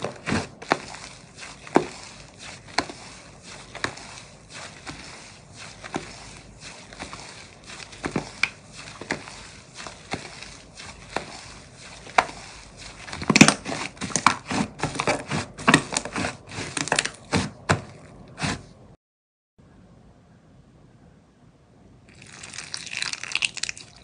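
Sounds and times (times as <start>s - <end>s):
slime crackling and popping: 22.1s - 24.0s.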